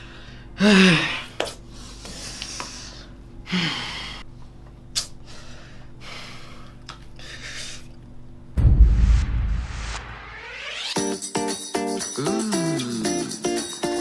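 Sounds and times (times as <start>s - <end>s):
steady low hum: 0.0s - 10.6s.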